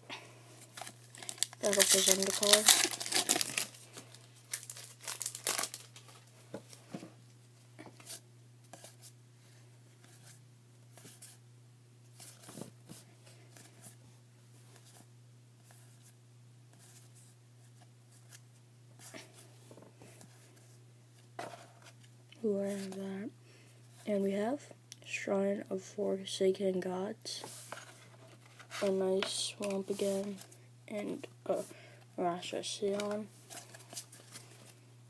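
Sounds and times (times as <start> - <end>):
low steady hum: 0.0 - 35.0
cards flicking and rustling: 0.7 - 3.8.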